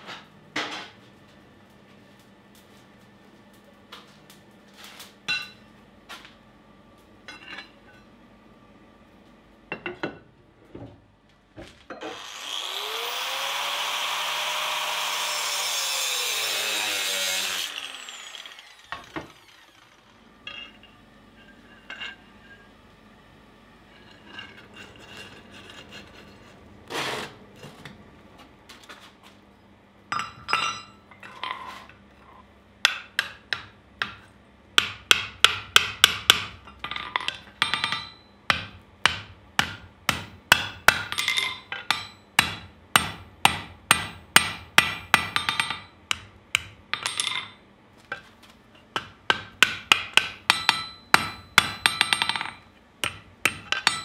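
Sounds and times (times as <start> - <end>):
hammer striking metal on anvil: 5.3 - 5.6, 32.8 - 34.2, 34.8 - 47.6, 49.0 - 54.0.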